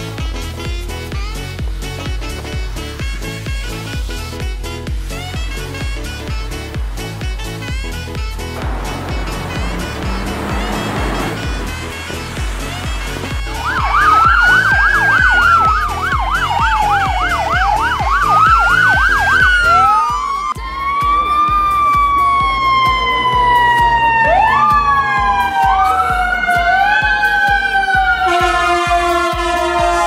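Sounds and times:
background music with steady beat: 0.0s - 30.0s
police sirens: 8.6s - 30.0s.

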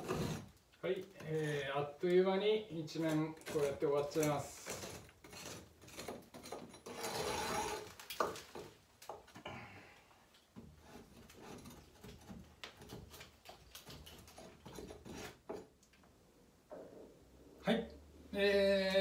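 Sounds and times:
paint scraping off a wall: 0.0s - 1.8s, 2.9s - 8.0s, 10.6s - 15.7s.

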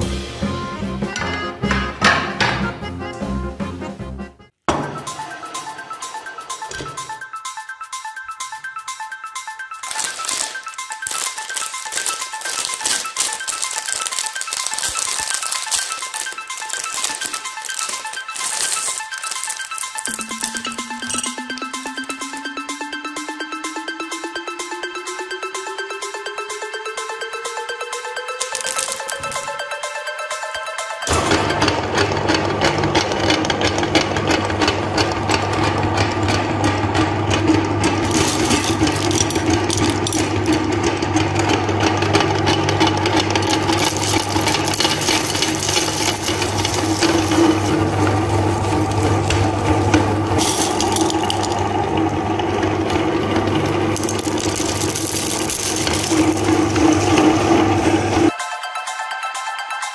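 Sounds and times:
candies crunching: 9.8s - 22.5s, 28.4s - 29.6s, 38.0s - 40.8s, 42.8s - 58.3s
meat grinder motor humming: 31.1s - 58.3s.

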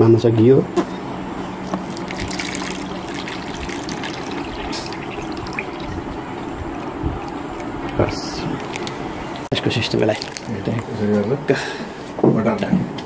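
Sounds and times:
water trickling into plastic bag: 1.6s - 6.4s, 8.3s - 10.7s.

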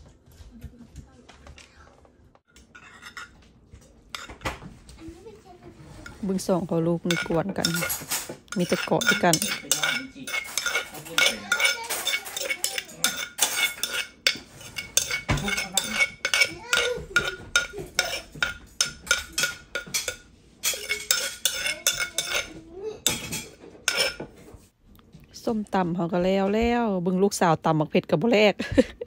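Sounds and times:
metal spoon scraping wooden mortar: 5.8s - 24.5s.

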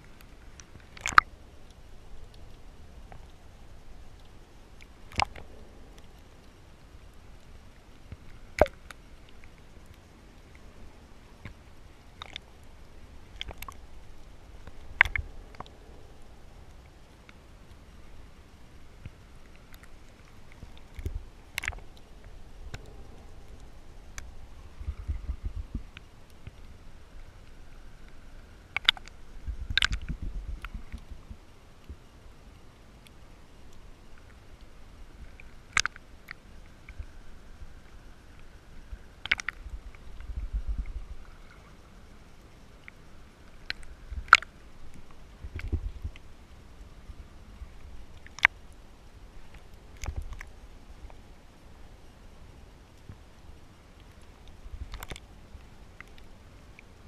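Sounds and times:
muffled water sloshing: 0.0s - 51.8s
faint underwater clicks and crackle: 0.0s - 57.0s
sharp loud underwater clicks: 0.1s - 3.4s, 4.1s - 6.5s, 8.1s - 9.6s, 12.2s - 12.5s, 13.3s - 13.9s, 14.6s - 15.9s, 19.0s - 26.7s, 27.4s - 32.0s, 35.2s - 37.2s, 38.3s - 41.8s, 42.8s - 46.3s, 48.1s - 48.6s, 49.5s - 51.2s, 54.1s - 55.3s.

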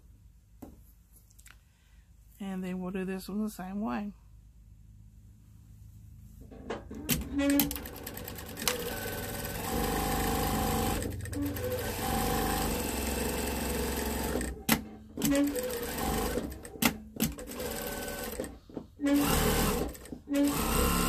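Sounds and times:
sewing machine stitching: 6.9s - 21.0s.

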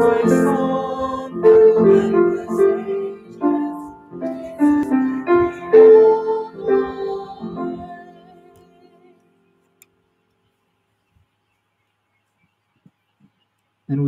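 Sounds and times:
piano playing slow chords: 0.0s - 9.6s.

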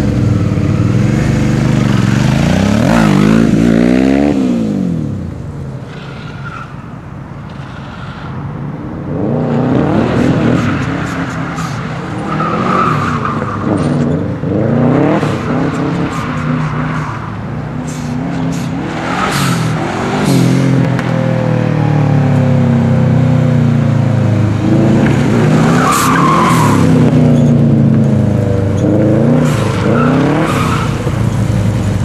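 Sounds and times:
car engine revving: 0.0s - 6.8s, 9.0s - 32.0s
tyre squeal: 5.8s - 8.5s, 25.6s - 27.6s.

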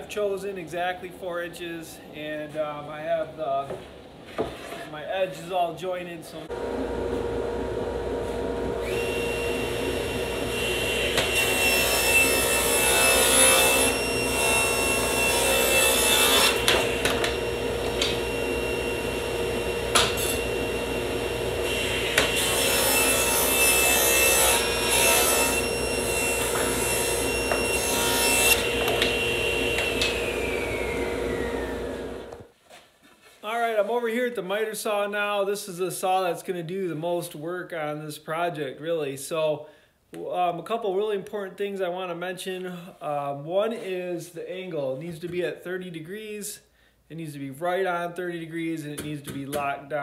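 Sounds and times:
table saw ripping a board: 8.8s - 32.0s.

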